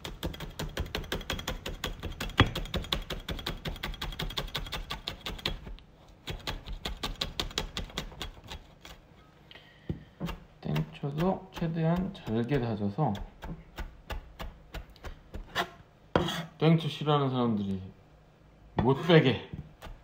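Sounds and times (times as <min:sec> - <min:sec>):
knife chopping on wooden board: 0:00.0 - 0:05.7, 0:10.2 - 0:16.5.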